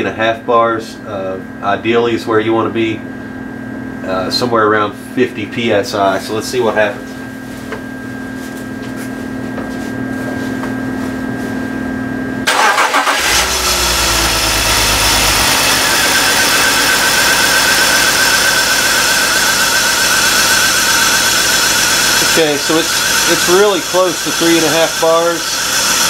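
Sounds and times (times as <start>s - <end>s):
steady hum: 0.0s - 26.0s
car engine starting and idling: 12.4s - 26.0s.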